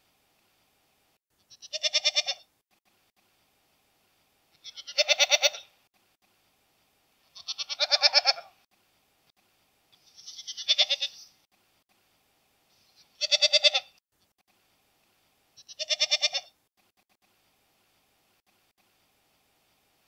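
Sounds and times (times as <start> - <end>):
goat bleating: 1.5 - 2.5, 4.6 - 5.7, 7.3 - 8.6, 10.0 - 11.3, 13.0 - 14.0, 15.6 - 16.5.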